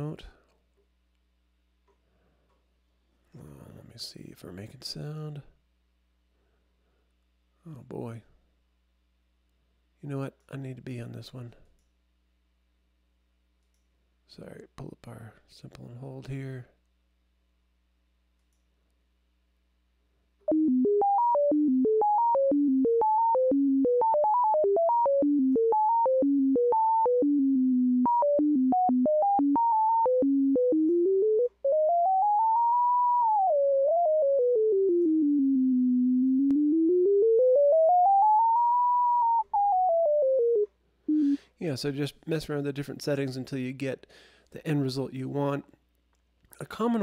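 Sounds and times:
synthesizer tone with stepping pitch: 20.5 - 41.4.

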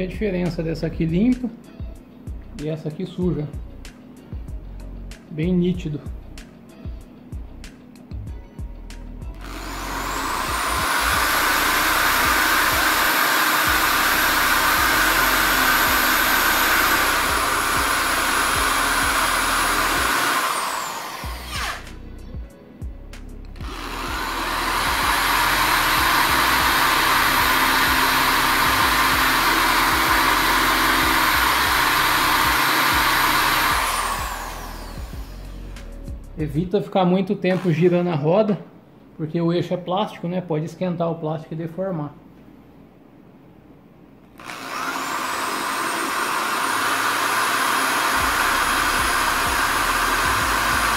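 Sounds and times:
electric drill whining: 9.3 - 22.2, 23.5 - 36.2, 37.5 - 38.0, 44.3 - 50.9.

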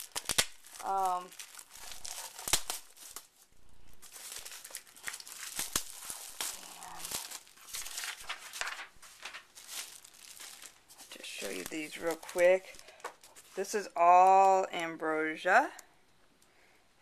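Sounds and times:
plastic packaging crinkling: 0.0 - 14.8.

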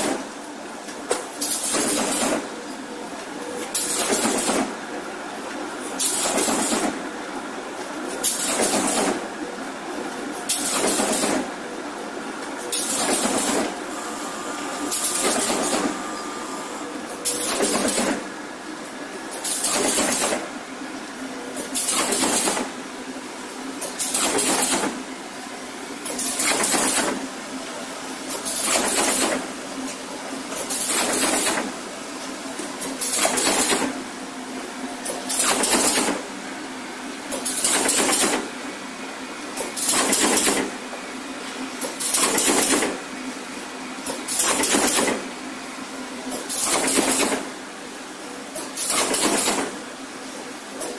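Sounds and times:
machine running hum: 9.3 - 23.8
machine noise bursts: 12.7 - 18.3.

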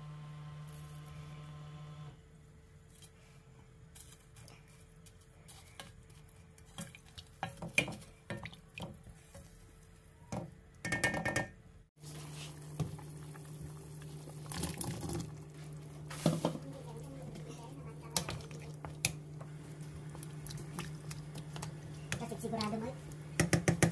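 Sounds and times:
wooden spoon stirring in a steel pot: 4.2 - 10.1, 12.0 - 23.9.

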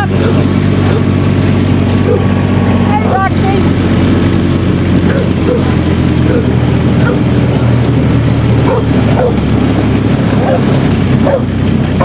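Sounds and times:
vehicle engine running: 0.0 - 12.0
dog barking: 2.0 - 2.3, 5.0 - 7.4, 8.6 - 9.4, 10.4 - 12.0.

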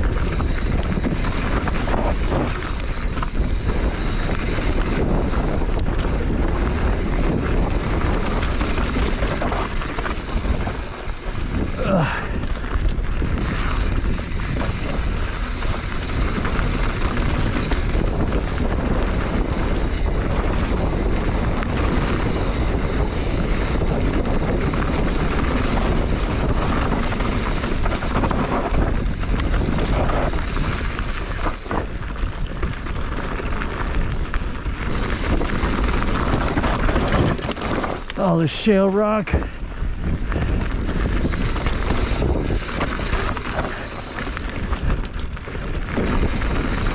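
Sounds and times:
bike tyres crunching on loose dirt: 0.0 - 46.9
wind rushing over microphone: 0.0 - 46.9.

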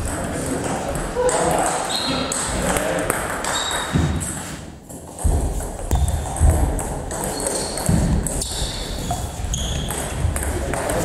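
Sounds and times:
footsteps on wooden floor: 7.9 - 11.0.

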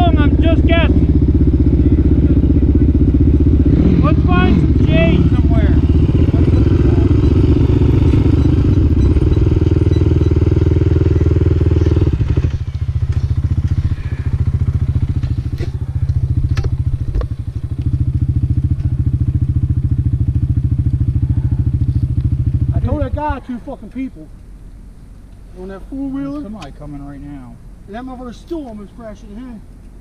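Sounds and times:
quad engine revving and idling: 0.0 - 23.5.

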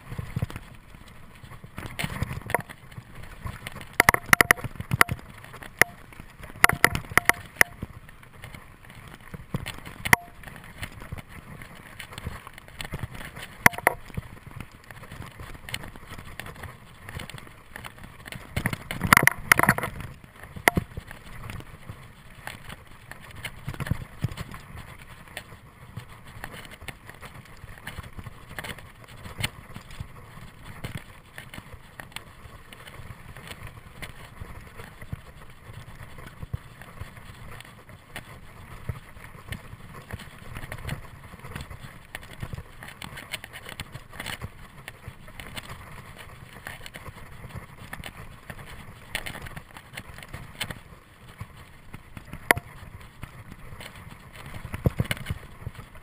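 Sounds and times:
bike tyres rumbling on dirt: 0.0 - 56.0
bike clattering over bumps: 3.8 - 8.5, 13.6 - 15.2.

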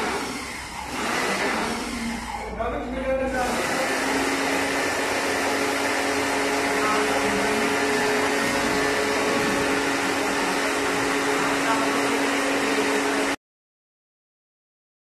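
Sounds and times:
pressure washer motor humming: 0.0 - 13.4
water jet hissing: 3.4 - 13.4.

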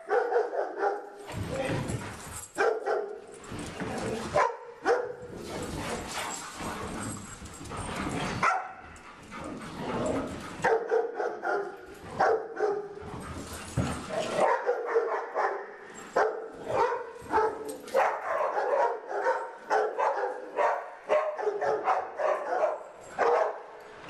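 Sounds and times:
dogs barking: 0.0 - 1.2, 2.6 - 3.2, 4.3 - 5.3, 8.4 - 8.9, 10.6 - 13.0, 14.1 - 23.7.

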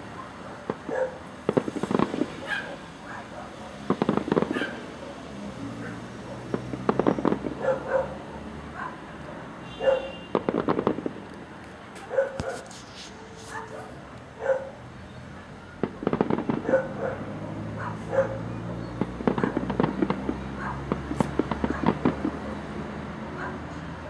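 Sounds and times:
distant fireworks crackling: 0.0 - 23.9
dog barking: 0.1 - 1.2, 2.4 - 6.6, 7.6 - 10.2, 12.0 - 15.6, 16.6 - 18.6, 19.3 - 19.6, 20.5 - 22.0, 23.3 - 23.8.

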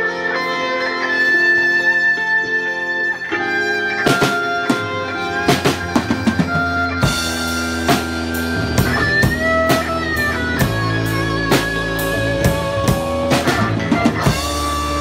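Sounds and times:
electric guitar sustained lead notes: 0.0 - 15.0
drum kit playing: 3.4 - 15.0.

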